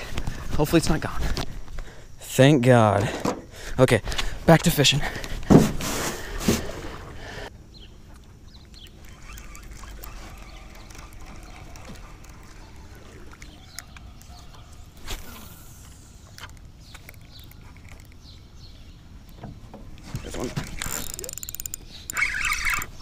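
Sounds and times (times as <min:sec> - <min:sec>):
fishing reel clicks: 0:08.7 - 0:13.9, 0:20.2 - 0:23.0.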